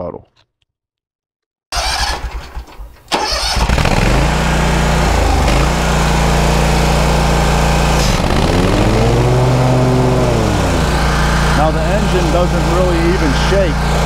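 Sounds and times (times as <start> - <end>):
mower engine at full throttle: 3.2 - 14.0.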